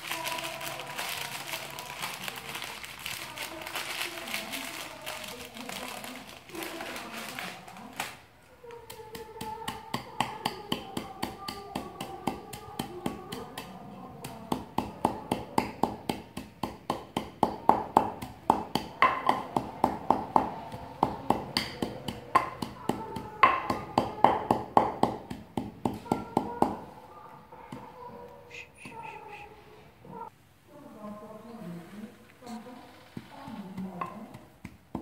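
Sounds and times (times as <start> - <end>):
wooden pestle pounding in mortar: 8.8 - 26.9, 33.2 - 35.0.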